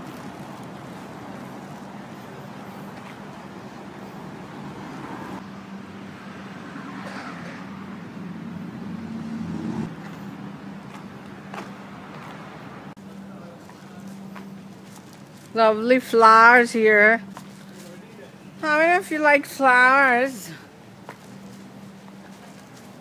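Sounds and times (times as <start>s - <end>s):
street traffic engine hum: 0.0s - 23.0s.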